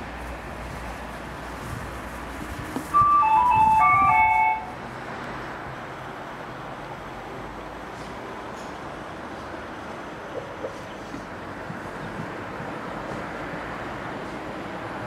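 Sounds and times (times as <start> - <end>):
outdoor background noise: 0.0 - 15.0
loudspeaker chime melody: 3.0 - 4.8.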